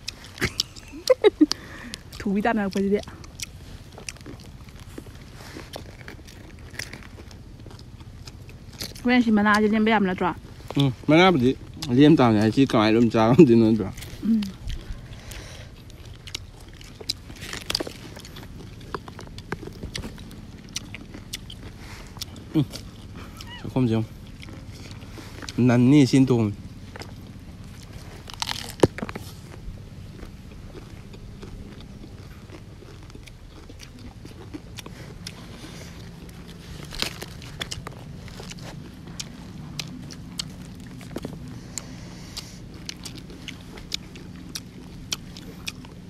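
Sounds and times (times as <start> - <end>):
crunching raw cabbage leaves: 0.0 - 46.0
mouth clicks: 14.0 - 25.6, 30.2 - 46.0.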